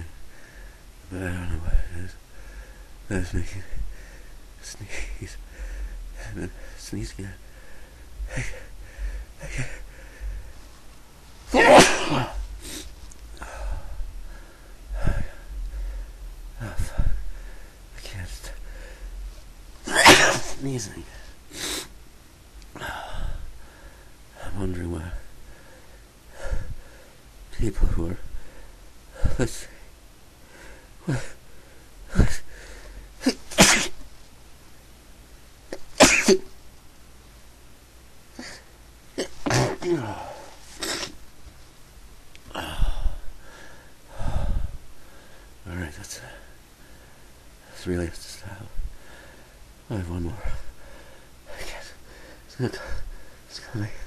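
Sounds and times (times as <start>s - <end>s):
short breaths: 2.3s - 3.0s, 5.4s - 6.8s, 7.4s - 10.7s, 12.3s - 17.8s, 49.0s - 49.6s
person sneezing loudly: 11.5s - 12.9s, 19.8s - 20.7s, 33.2s - 34.0s, 35.7s - 36.5s, 39.2s - 41.2s.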